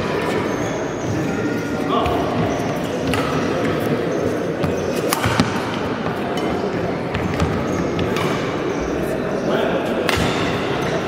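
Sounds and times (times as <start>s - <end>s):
crowd murmur in indoor hall: 0.0s - 11.0s
rackets hitting shuttlecock: 3.0s - 4.0s, 4.6s - 8.7s, 9.9s - 10.9s.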